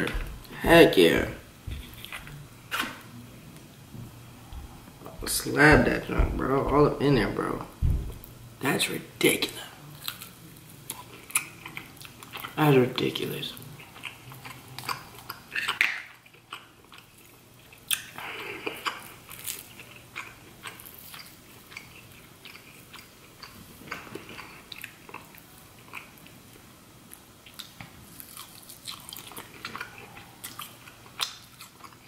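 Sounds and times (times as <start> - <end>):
chewing and biting: 13.6 - 26.4, 27.1 - 32.0.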